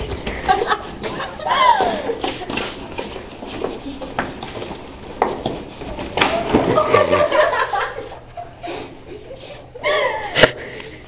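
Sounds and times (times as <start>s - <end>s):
girl giggling: 0.3s - 2.6s, 6.6s - 10.6s.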